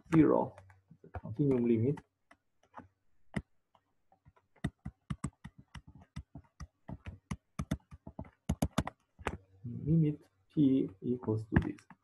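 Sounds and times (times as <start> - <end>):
stylus clicking on pen tablet: 0.0 - 9.5.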